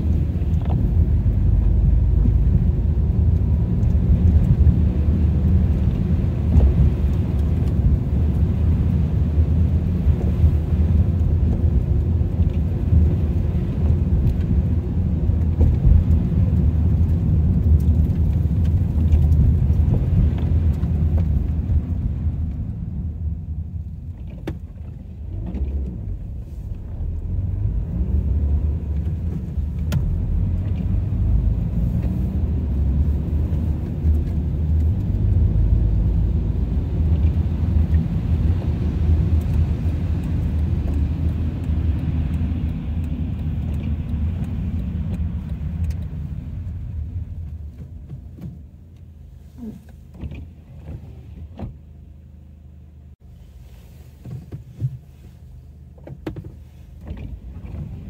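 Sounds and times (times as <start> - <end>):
car road and engine rumble: 0.0 - 58.0.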